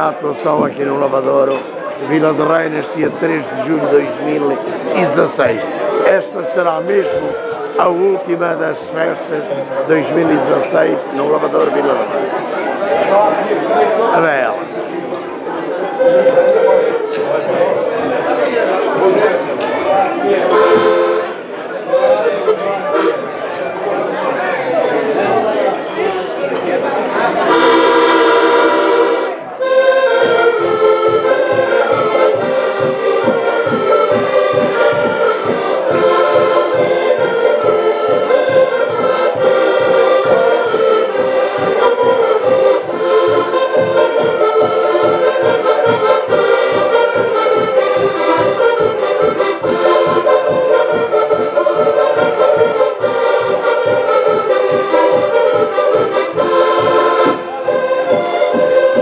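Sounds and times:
steady beat: 0.0 - 12.1, 20.4 - 23.4, 27.5 - 59.0
accordion ensemble playing: 0.0 - 59.0.

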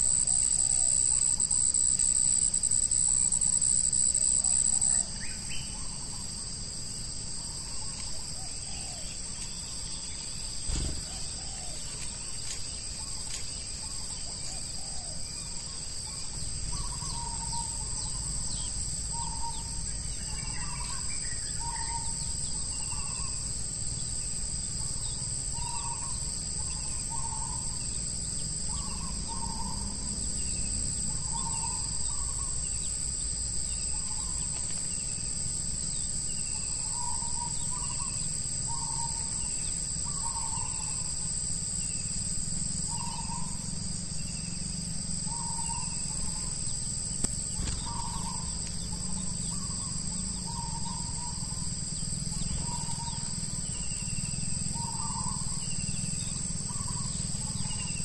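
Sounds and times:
faint high chirps: 0.0 - 6.2
high-pitched insect drone: 0.0 - 9.0, 12.3 - 58.0.

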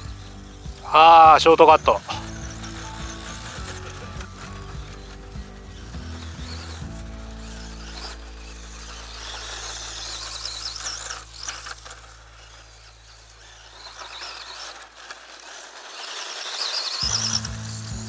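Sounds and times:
low background drone: 0.0 - 13.4, 17.0 - 18.0
toy car electric motor whining: 0.0 - 18.0.

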